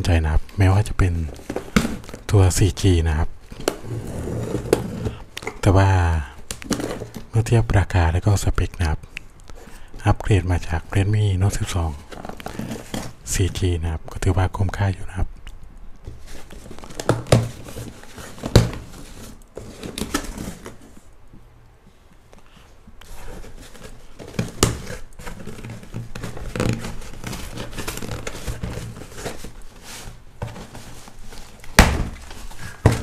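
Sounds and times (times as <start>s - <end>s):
plastic and cardboard crinkling: 0.0s - 2.8s, 3.4s - 7.6s, 10.6s - 13.3s, 16.0s - 21.1s, 23.0s - 33.0s.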